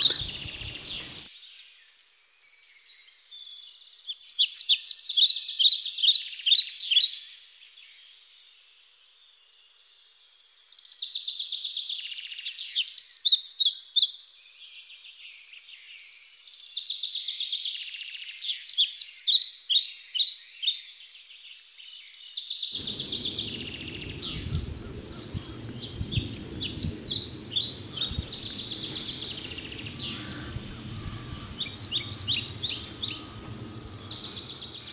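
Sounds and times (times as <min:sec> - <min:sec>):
songbirds chirping and trilling: 0:00.0 - 0:11.4, 0:14.4 - 0:34.9
low outdoor background rumble: 0:22.8 - 0:34.9.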